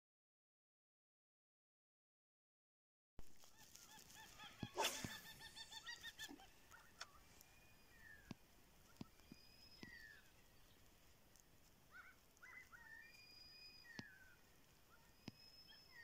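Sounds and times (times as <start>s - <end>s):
bird calling in rapid notes: 3.4s - 10.5s, 11.9s - 16.0s.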